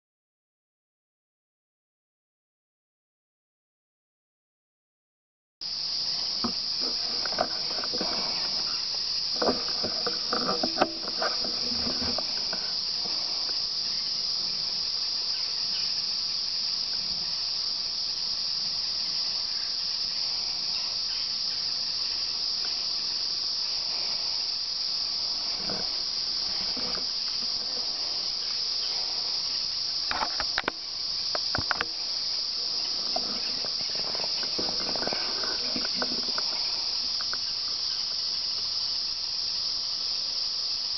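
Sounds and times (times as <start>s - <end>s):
high-pitched insect chorus: 5.6s - 40.9s
rustles and clicks: 6.2s - 14.4s, 22.4s - 37.4s.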